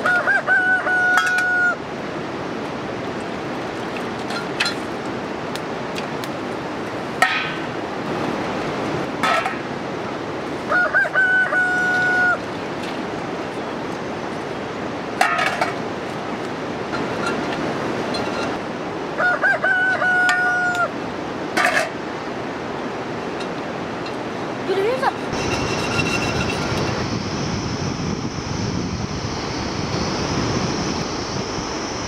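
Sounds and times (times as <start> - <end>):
rooster crowing: 0.0 - 1.8, 10.7 - 12.4, 19.2 - 21.0.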